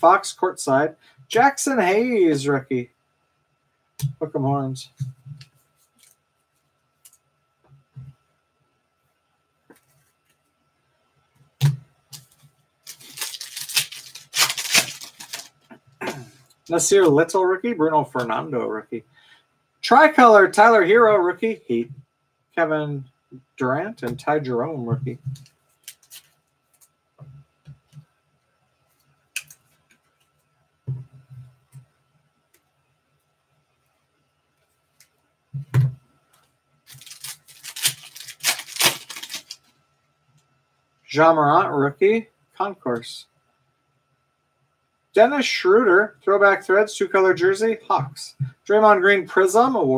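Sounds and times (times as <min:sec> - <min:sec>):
foil wrapper tearing and crinkling: 0:12.8 - 0:15.6, 0:25.8 - 0:26.3, 0:36.9 - 0:39.7.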